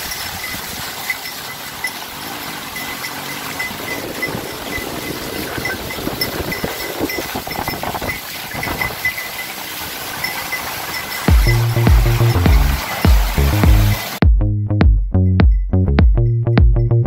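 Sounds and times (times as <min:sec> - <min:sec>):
light high tinkle: 0:00.0 - 0:02.0, 0:02.7 - 0:09.6, 0:10.2 - 0:13.1
hooves clopping and splashing: 0:00.0 - 0:14.2.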